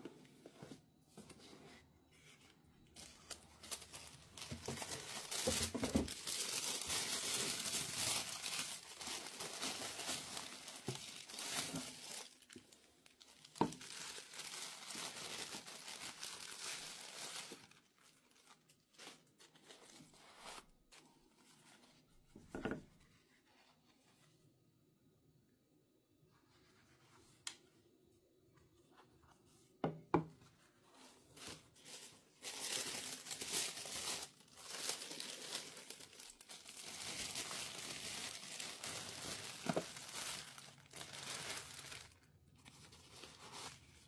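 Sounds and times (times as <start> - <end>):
tissue paper crinkling: 1.4 - 22.2, 30.6 - 44.0.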